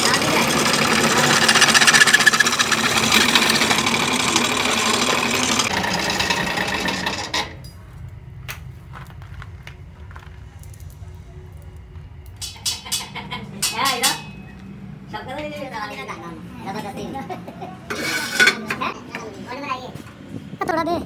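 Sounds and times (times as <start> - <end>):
drill press grinding through steel: 0.0 - 7.6.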